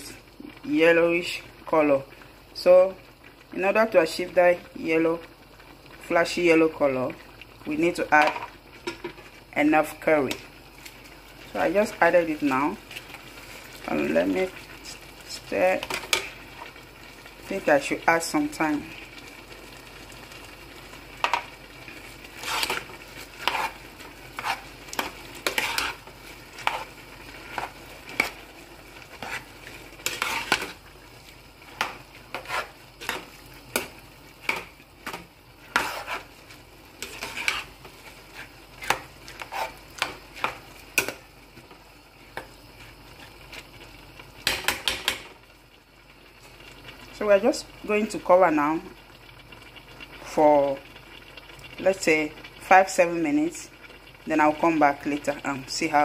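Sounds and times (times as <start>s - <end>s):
faint hiss of cooking rice: 0.0s - 56.0s
metal spoon scraping a pot: 22.4s - 28.4s, 29.1s - 30.8s, 31.8s - 33.9s, 34.5s - 36.4s, 37.0s - 41.1s.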